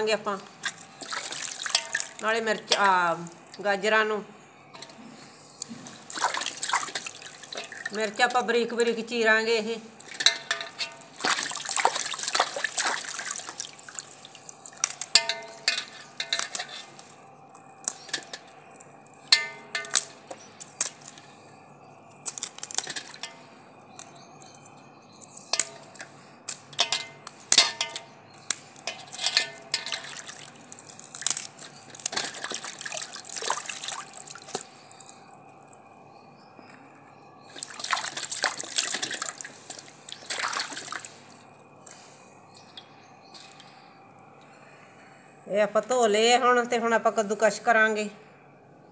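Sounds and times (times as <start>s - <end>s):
water sloshing in metal basin: 0.4s - 3.6s, 4.7s - 21.4s, 22.2s - 24.6s, 25.3s - 35.7s, 37.4s - 43.8s
vegetables splashing in water: 0.6s - 2.2s, 6.0s - 8.1s, 11.1s - 15.7s, 29.7s - 35.0s, 37.5s - 41.2s.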